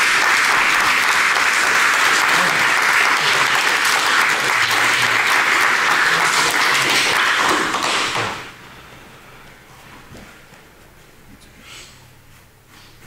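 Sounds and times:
people applauding: 0.0 - 8.5.

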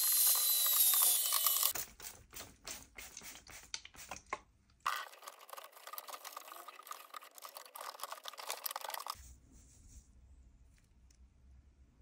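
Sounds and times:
electric air duster hissing: 0.0 - 1.7.

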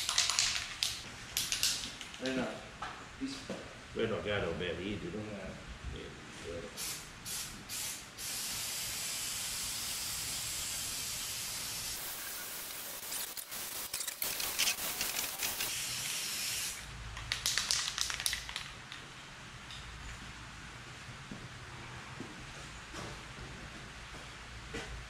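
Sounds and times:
rattle of quick clicks: 0.0 - 2.4, 13.2 - 15.7, 17.1 - 19.1
aerosol can spraying: 6.8 - 16.8.

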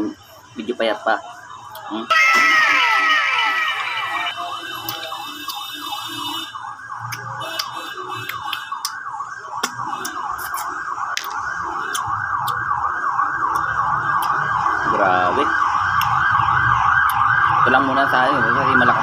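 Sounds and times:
warbling siren-like tone: 2.1 - 7.4.

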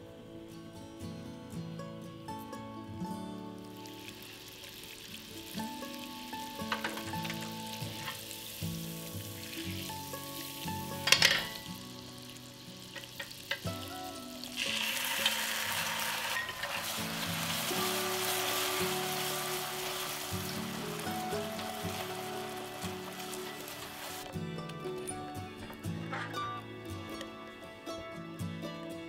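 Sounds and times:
caramel sizzling as cream is added: 3.6 - 24.3.

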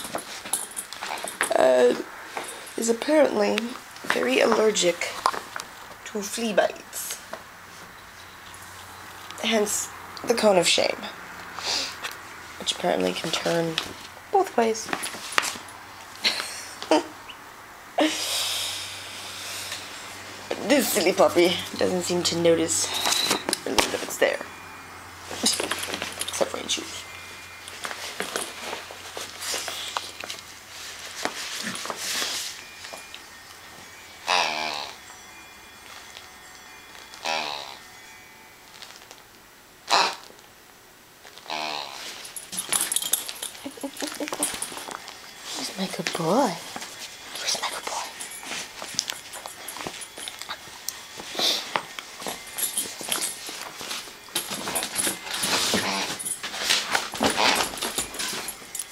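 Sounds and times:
puppy scuffling: 25.2 - 33.2, 42.0 - 58.9
fabric cone collar rustling: 25.2 - 34.0, 41.2 - 58.9.

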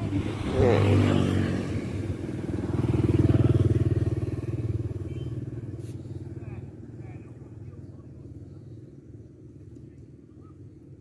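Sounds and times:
motorcycle engine passing: 0.0 - 6.6.

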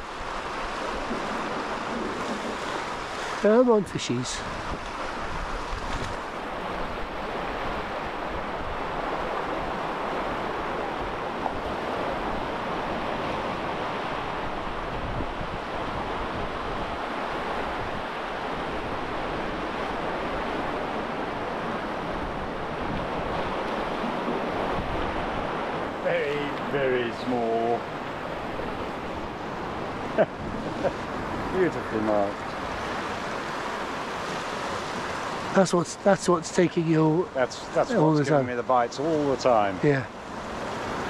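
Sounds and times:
wind rumble on microphone: 0.0 - 3.2, 4.4 - 26.7.

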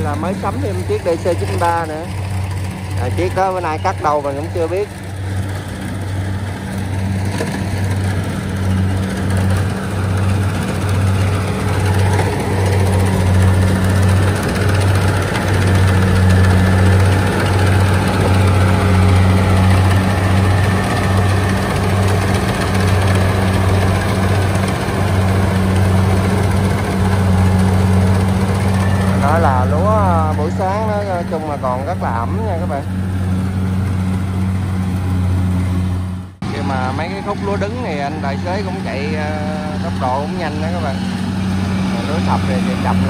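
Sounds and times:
combine harvester engine droning: 0.0 - 43.0.

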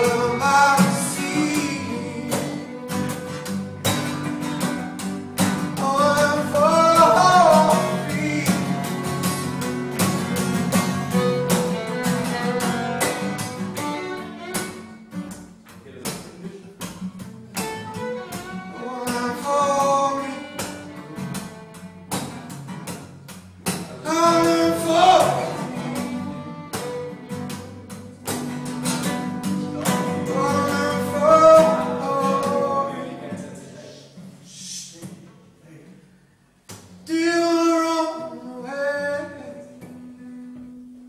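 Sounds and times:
fiddle playing melody: 0.0 - 15.4, 17.5 - 22.5, 24.1 - 33.6
acoustic guitars strumming: 0.0 - 35.2, 36.0 - 41.0.

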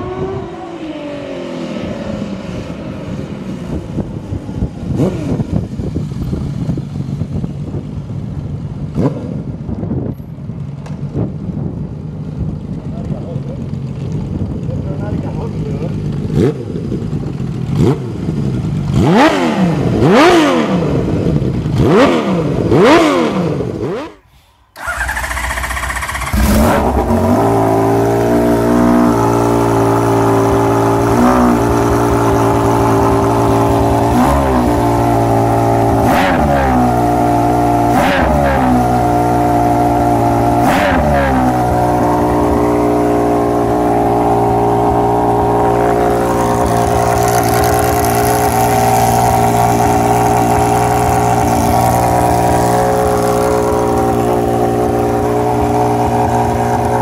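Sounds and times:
motorcycle engine idling: 11.8 - 18.9, 24.7 - 26.7
engine throttle blips: 21.7 - 57.0.

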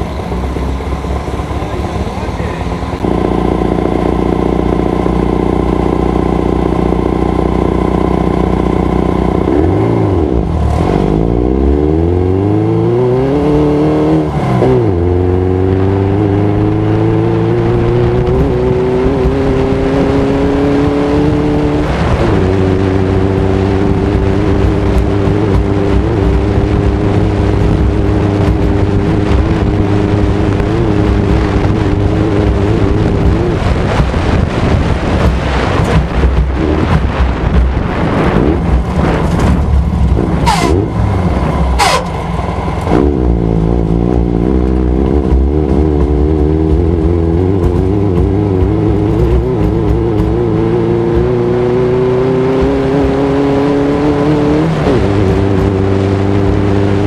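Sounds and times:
car engine idling and revving: 0.0 - 57.0.

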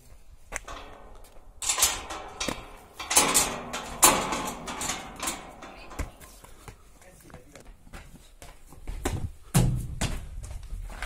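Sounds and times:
metal gate rattling and clanking: 0.6 - 6.4.

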